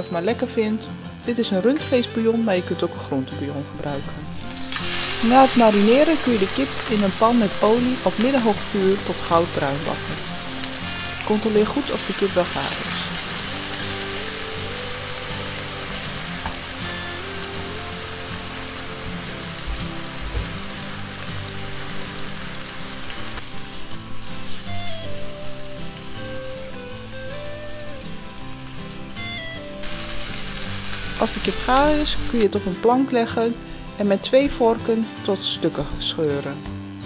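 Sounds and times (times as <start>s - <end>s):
light background music: 0.0s - 37.0s
chicken sizzling in a pan: 4.3s - 32.4s.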